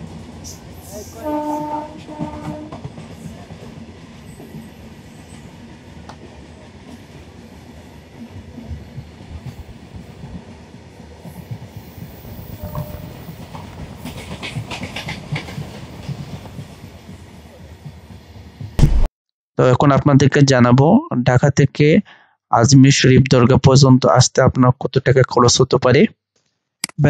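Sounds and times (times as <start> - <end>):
train rumbling on tracks: 0.0 - 18.8.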